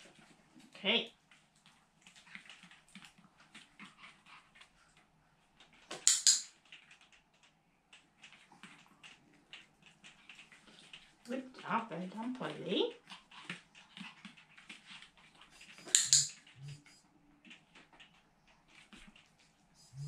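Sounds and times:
light ticks and rustles: 0.0s - 20.0s.

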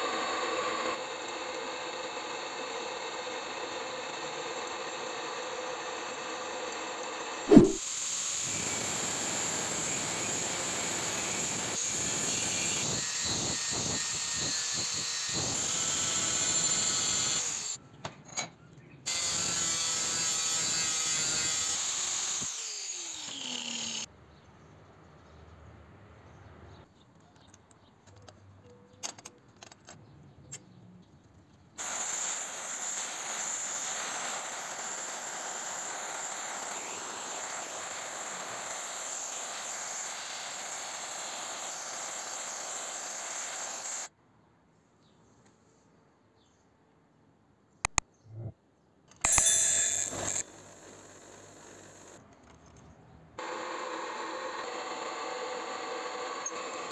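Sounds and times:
grinder disc on steel: 49.2s - 52.2s.

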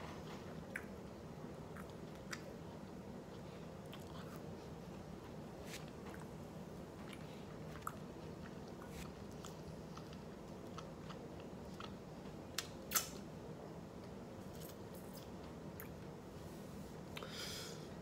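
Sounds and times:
man chewing food: 0.2s - 13.1s
mouth clicks and smacks: 12.6s - 13.2s.

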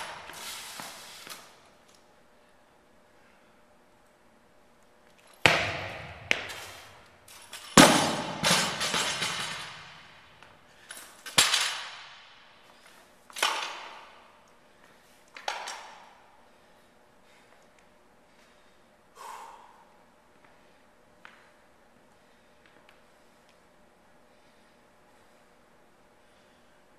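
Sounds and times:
barbell crashing on platform: 5.4s - 6.9s, 7.6s - 10.2s.

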